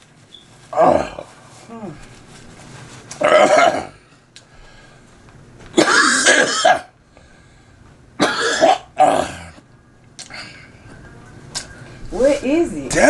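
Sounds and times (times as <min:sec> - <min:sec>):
man clearing his throat: 0:03.2 - 0:04.0, 0:05.8 - 0:06.9, 0:08.2 - 0:09.6
man coughing hard: 0:03.3 - 0:04.0, 0:05.8 - 0:07.0, 0:08.2 - 0:09.6.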